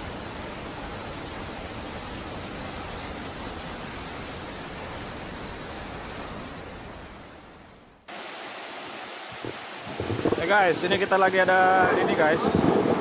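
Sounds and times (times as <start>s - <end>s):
waterfall rushing: 8.1s - 13.0s.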